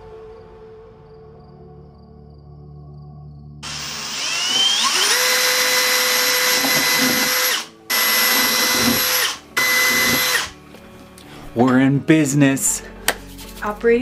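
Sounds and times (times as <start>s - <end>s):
electric drill whining: 3.6s - 10.6s.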